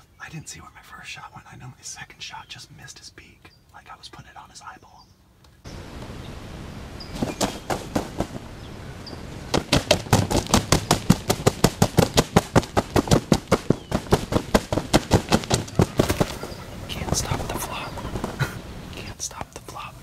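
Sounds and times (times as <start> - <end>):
turkey wings thumping ground: 7.1 - 18.7.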